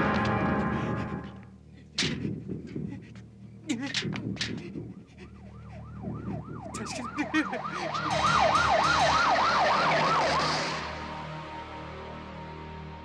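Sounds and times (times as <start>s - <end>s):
siren yelping: 4.9s - 11.1s.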